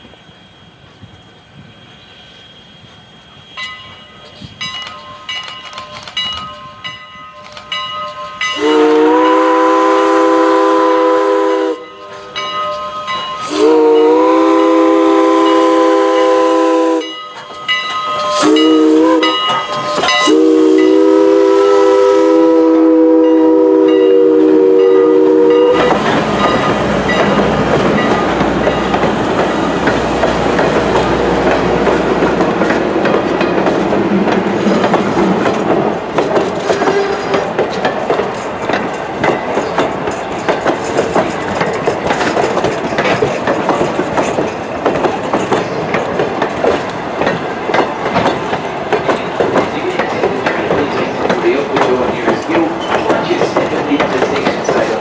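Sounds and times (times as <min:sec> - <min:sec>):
train running rush: 0:00.0 - 0:55.0
steam locomotive whistle: 0:08.3 - 0:27.4, 0:36.6 - 0:37.4.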